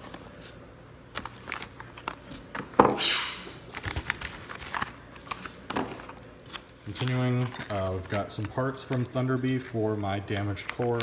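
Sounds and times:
plastic bags crinkling: 1.1s - 2.4s, 3.6s - 11.0s.

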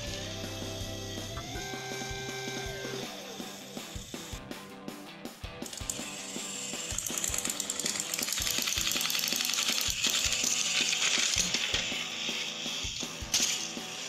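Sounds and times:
toy train motor clicking whir: 0.0s - 4.4s, 5.6s - 14.0s
background music: 0.0s - 14.0s.

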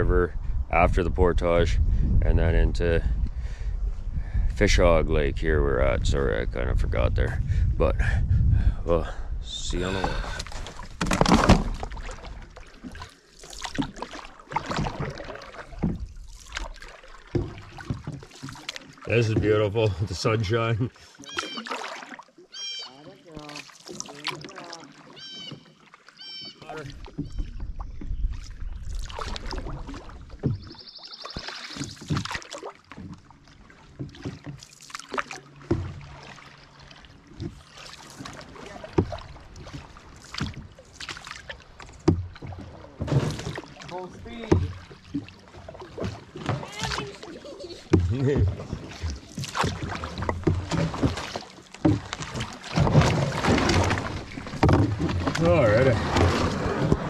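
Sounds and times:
wind on microphone: 0.0s - 10.6s
canoe paddles splashing water: 0.0s - 57.0s.

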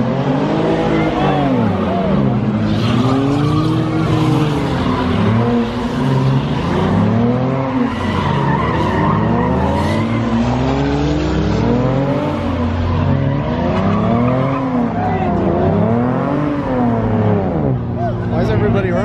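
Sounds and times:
car engine revving hard: 0.0s - 17.9s
tyre squeal: 7.3s - 10.8s.

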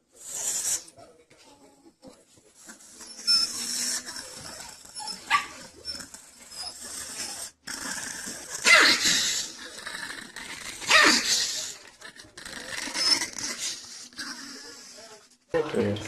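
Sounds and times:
small dog yapping: 8.6s - 9.1s, 10.9s - 11.4s.

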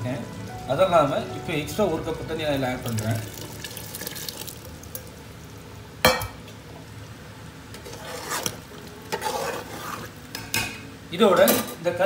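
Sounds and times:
spoon stirring thick gravy: 7.8s - 10.4s.

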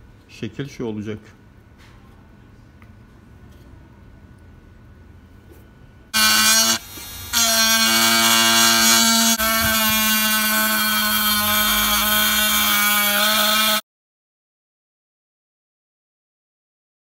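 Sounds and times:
rotary tool motor whine: 6.2s - 13.8s.

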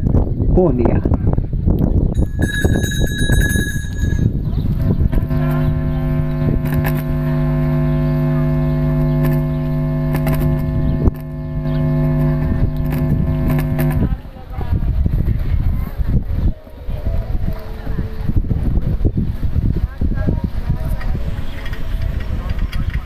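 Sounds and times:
bell ringing: 2.2s - 4.6s
low droning tone: 2.2s - 14.2s.

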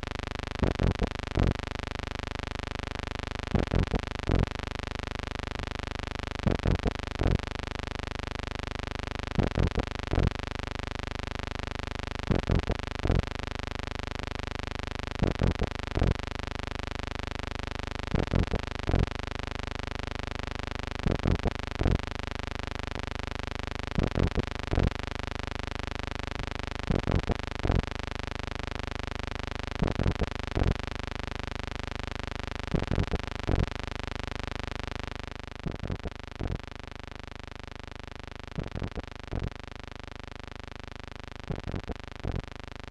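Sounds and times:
electrical hum: 0.0s - 7.6s, 9.2s - 10.5s, 12.2s - 13.5s, 15.1s - 16.3s, 18.0s - 19.2s, 21.0s - 22.1s, 23.9s - 25.0s, 26.4s - 27.9s, 29.8s - 30.8s, 32.7s - 33.8s, 35.6s - 36.7s, 38.6s - 39.6s, 41.5s - 42.5s.

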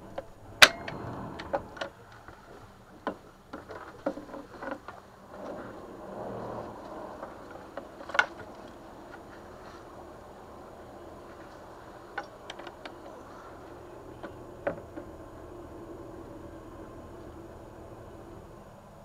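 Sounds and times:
soft rustle: 1.0s - 14.4s.

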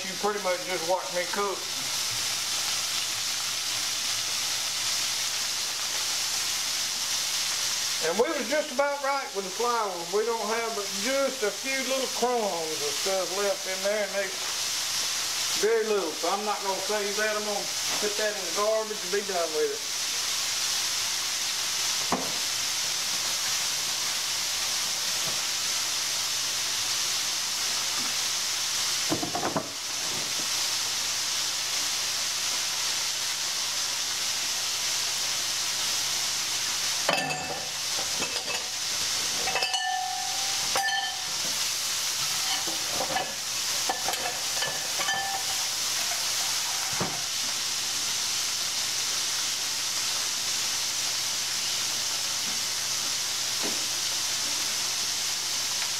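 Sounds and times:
deep-frying sizzle: 0.0s - 55.9s
kitchenware clinks: 37.1s - 38.7s, 39.4s - 41.4s, 42.4s - 45.6s.

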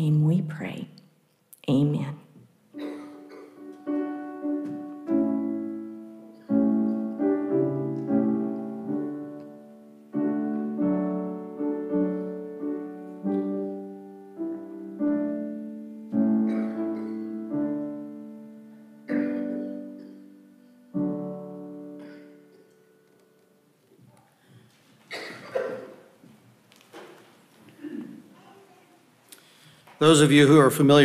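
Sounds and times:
piano chords: 2.7s - 24.0s.

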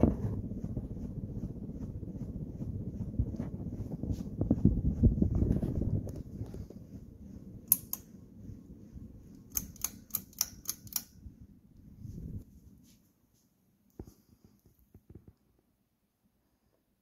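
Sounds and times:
fan wind buffeting microphone: 0.0s - 13.0s
ceiling fan humming: 0.0s - 17.0s
sharp clicks: 7.7s - 8.1s, 9.5s - 11.2s.

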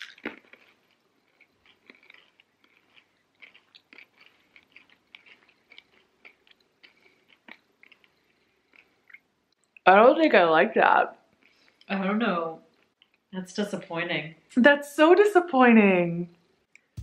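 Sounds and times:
chewing crunchy candy: 0.0s - 9.8s, 12.6s - 13.3s.

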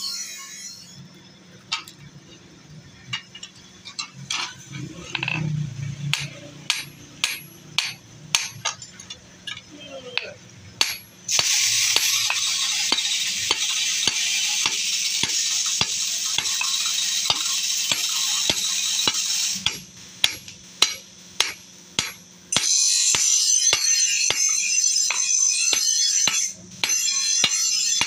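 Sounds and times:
hammer striking blade on anvil: 6.1s - 8.8s, 10.2s - 28.0s.

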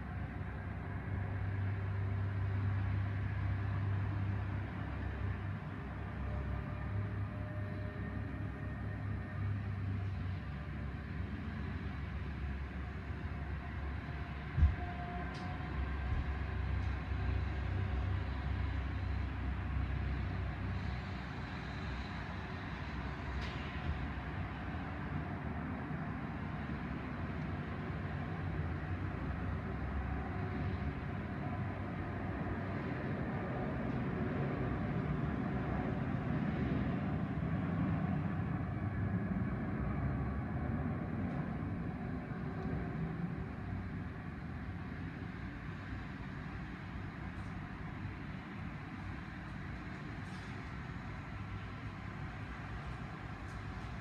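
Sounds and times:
jet engines rumbling: 20.8s - 54.0s.

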